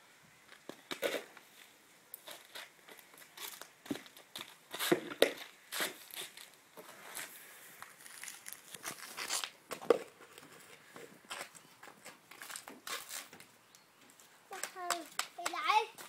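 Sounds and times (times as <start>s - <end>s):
shoes scuffing on paving stones: 2.2s - 7.3s, 7.9s - 13.5s.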